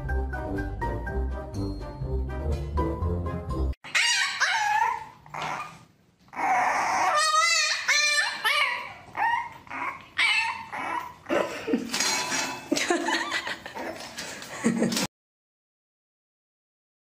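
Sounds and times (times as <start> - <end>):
puppy whining and yipping: 3.8 - 11.3, 13.7 - 14.2.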